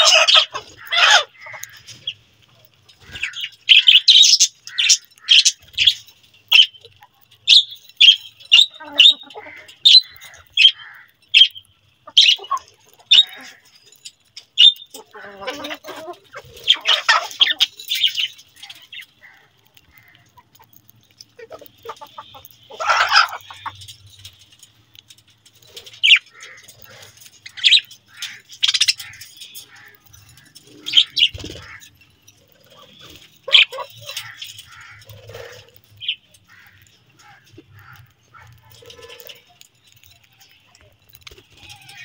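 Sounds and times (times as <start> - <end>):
budgerigars chirping: 0.0 - 2.2, 3.0 - 6.9, 7.5 - 13.5, 14.6 - 15.5, 21.4 - 23.8, 26.0 - 29.8, 32.8 - 36.8.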